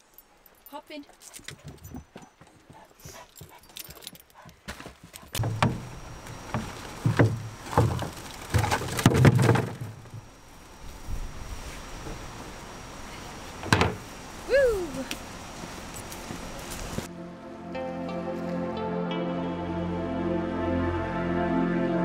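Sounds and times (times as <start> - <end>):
plastic rubbish rustling: 5.4 - 10.7
wind rumbling on microphone: 10.0 - 12.4.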